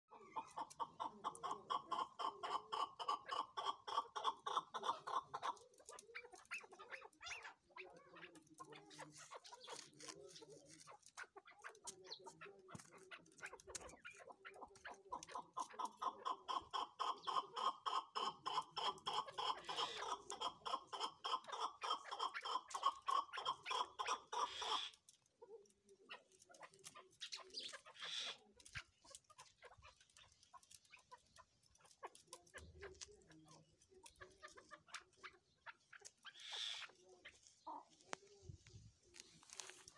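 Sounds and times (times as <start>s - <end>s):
soft partridge calls: 0.1s - 39.9s
partridges calling rapid chuck notes: 33.8s - 36.9s.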